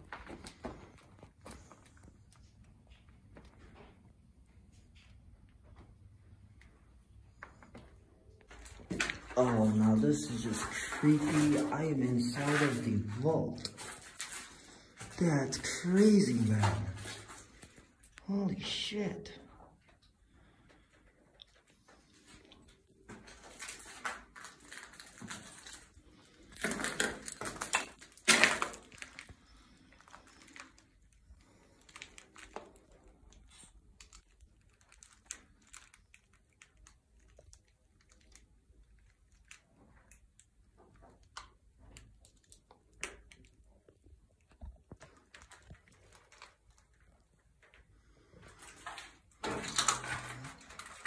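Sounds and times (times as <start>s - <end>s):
footsteps on debris-strewn floor: 0.0s - 5.9s, 7.4s - 18.2s, 21.6s - 30.8s
paper crunching and rustling: 8.5s - 17.9s, 22.0s - 38.4s, 48.4s - 51.0s.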